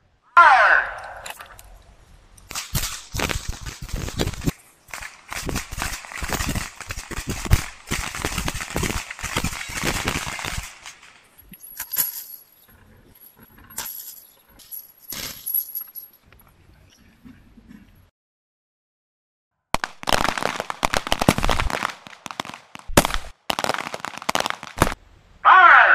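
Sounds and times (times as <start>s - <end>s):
pistol gunshots: 4.9s - 11.2s, 19.8s - 25.0s.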